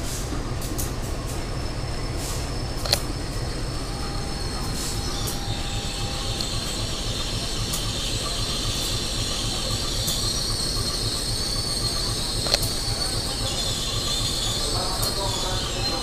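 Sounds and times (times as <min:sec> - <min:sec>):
locomotive engine rumble: 0:00.0 - 0:16.0
steel wheels squealing on rail: 0:00.0 - 0:16.0
sharp click: 0:02.8 - 0:03.1, 0:11.9 - 0:13.0.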